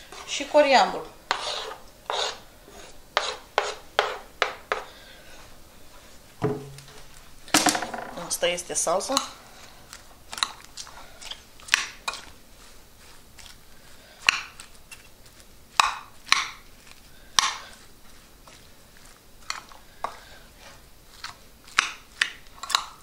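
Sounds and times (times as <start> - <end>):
metal spoon scraping a bowl: 1.3 - 4.9.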